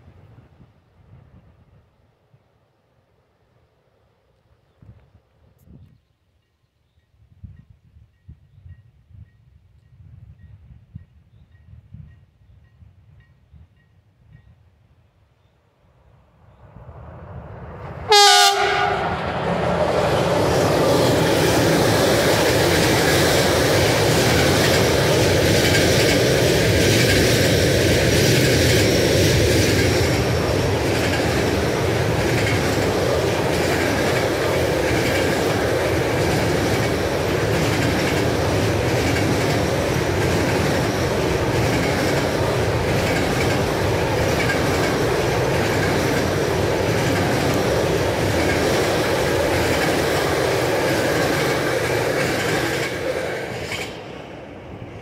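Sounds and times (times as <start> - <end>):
train wheels rushing on rails: 16.6 - 55.0.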